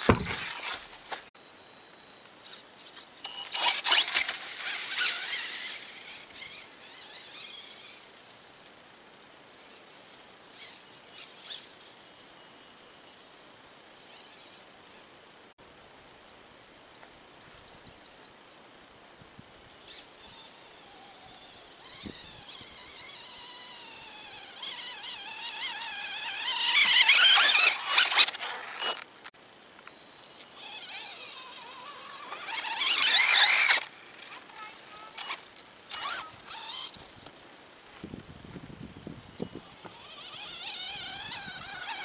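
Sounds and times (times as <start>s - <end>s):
toy car electric motor whining: 0.0s - 0.8s, 3.2s - 8.1s, 19.7s - 29.1s, 30.4s - 37.3s, 39.3s - 42.0s.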